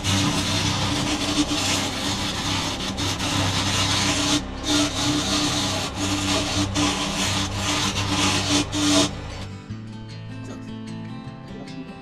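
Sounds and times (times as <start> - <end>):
chisel scraping spinning wood: 0.0 - 9.5
lathe motor hum: 0.0 - 9.5.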